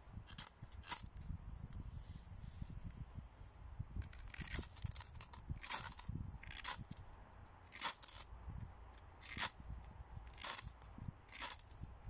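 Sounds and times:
wind rumble on microphone: 0:00.0 - 0:12.0
knife scraping ferrocerium rod: 0:11.3 - 0:11.7.

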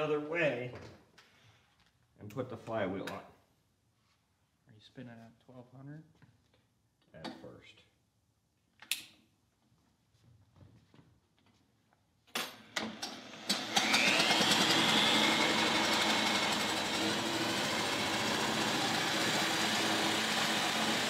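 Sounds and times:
cordless drill whining: 0:12.8 - 0:21.0.

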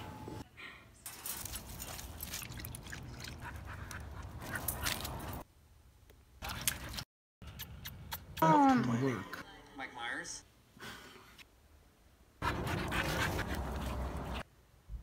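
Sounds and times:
dogs panting: 0:02.8 - 0:05.4, 0:12.4 - 0:14.4.

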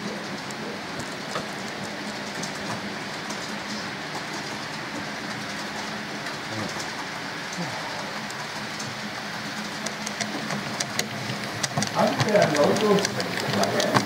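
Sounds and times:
model train motor whirring: 0:03.0 - 0:14.0.

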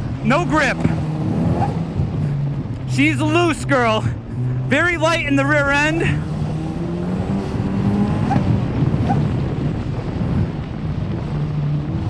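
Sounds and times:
race car engine running hard: 0:00.0 - 0:12.0.

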